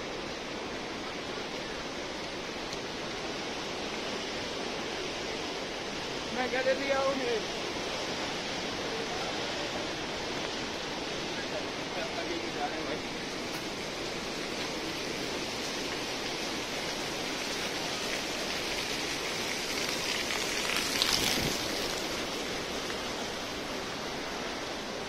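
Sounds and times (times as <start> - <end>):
water splashing onto stone: 18.2 - 22.3.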